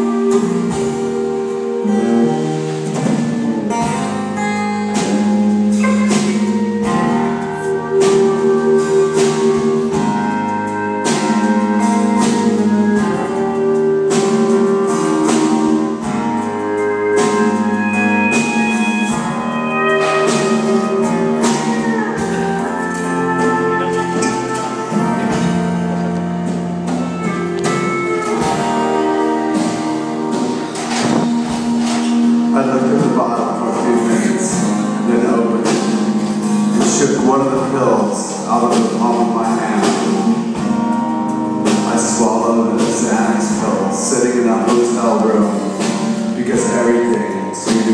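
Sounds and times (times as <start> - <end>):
acoustic guitar strumming: 15.6 - 35.6.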